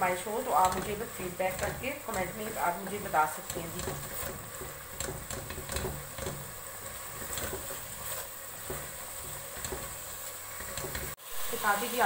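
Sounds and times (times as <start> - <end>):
faint sizzle: 0.0 - 12.0
spatula clicking against pot: 0.6 - 2.5
spatula scraping a metal pot: 0.6 - 11.2.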